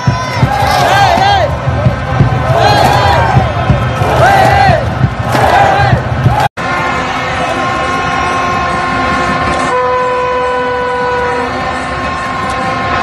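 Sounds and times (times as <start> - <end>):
fans blowing horns: 0.0 - 13.0
stadium crowd noise: 0.0 - 13.0
low loud horn: 6.6 - 13.0.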